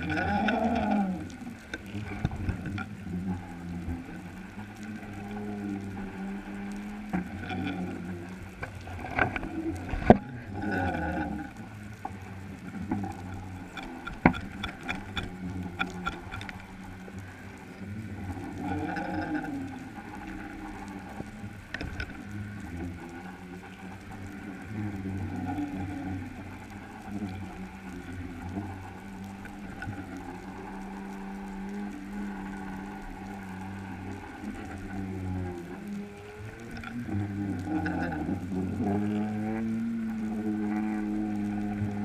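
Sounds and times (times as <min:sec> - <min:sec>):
underwater low hum: 0:00.0 - 0:42.0
wavering creaking tones: 0:00.0 - 0:42.0
sharp clicks and knocks: 0:12.9 - 0:17.0.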